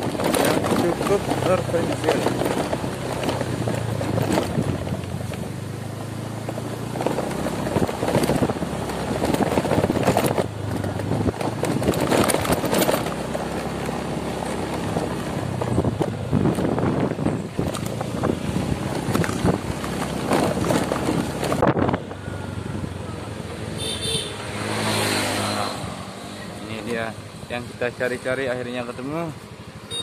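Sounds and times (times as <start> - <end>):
knocks from bumpy surface: 0.0 - 5.1
motorcycle engine running: 0.0 - 24.9
wind on microphone: 7.4 - 13.0, 14.9 - 23.0.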